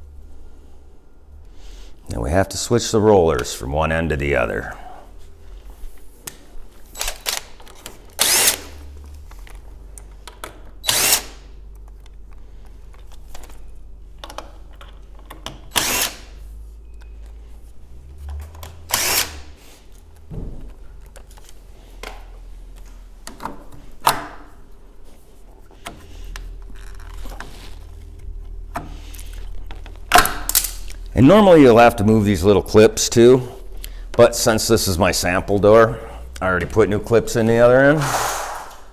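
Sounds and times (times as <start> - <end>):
cordless drill running in short bursts: 8.2 - 8.8, 10.8 - 11.4, 15.7 - 16.3, 18.9 - 19.5
handling clicks and knocks: 11.6 - 15.7.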